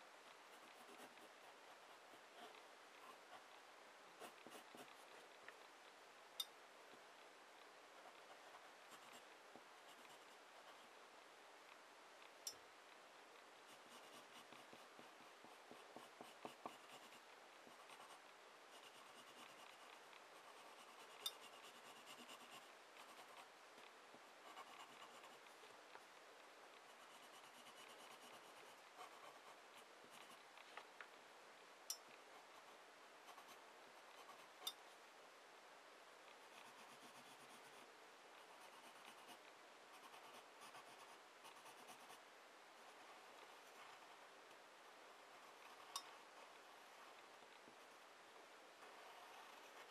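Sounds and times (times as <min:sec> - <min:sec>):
pencil scratching on paper: 0:13.7 - 0:23.5, 0:24.4 - 0:25.4, 0:26.9 - 0:30.4, 0:38.5 - 0:42.2, 0:48.9 - 0:49.9.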